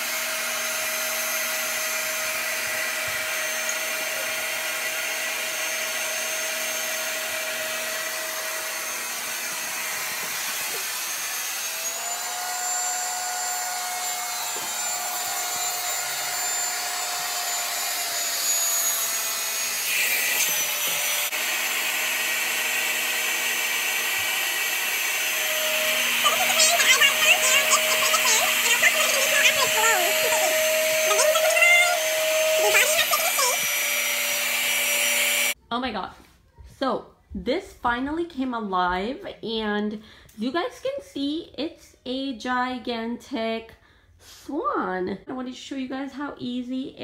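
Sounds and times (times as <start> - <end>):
electric air pump whine: 0.0 - 35.6.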